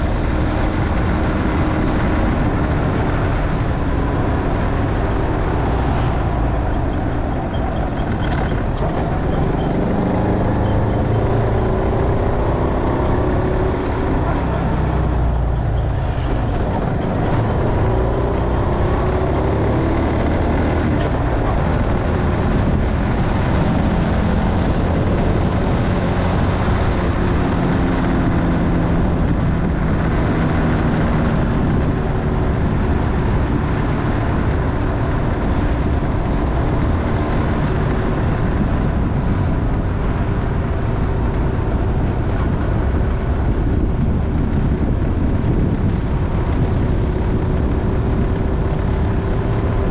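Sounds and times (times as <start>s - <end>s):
loud steady rushing noise: 0.0s - 49.9s
motorcycle engine: 0.0s - 49.9s.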